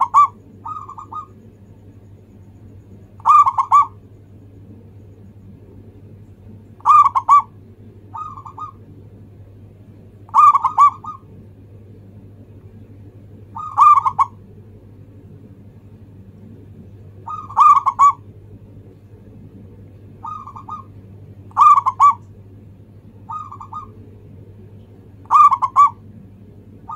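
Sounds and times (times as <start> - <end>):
dove cooing: 0.0 - 1.5, 2.9 - 4.1, 6.8 - 8.8, 10.3 - 11.4, 13.4 - 14.5, 17.2 - 18.3, 20.2 - 22.3, 23.2 - 24.1, 25.2 - 26.1
steady low hum: 0.0 - 26.9.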